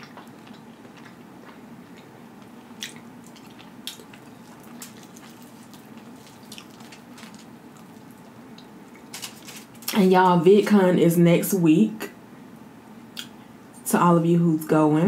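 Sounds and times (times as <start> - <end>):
wet chewing smacks: 0.0 - 9.1
faint steady hum: 0.0 - 15.0.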